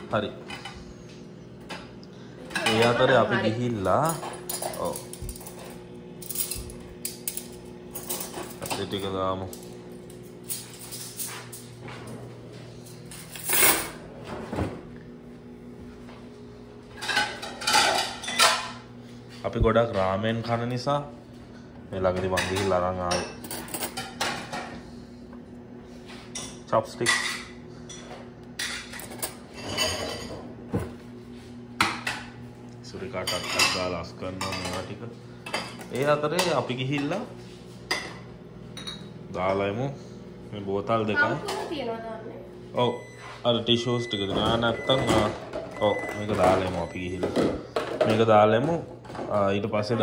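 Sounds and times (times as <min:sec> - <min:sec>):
steady low hum: 0:00.0 - 0:50.0
dishes and cutlery clattering: 0:02.5 - 0:03.0, 0:04.0 - 0:09.6, 0:17.0 - 0:18.8, 0:22.1 - 0:24.8, 0:26.3 - 0:30.9, 0:33.1 - 0:37.3, 0:44.2 - 0:49.4.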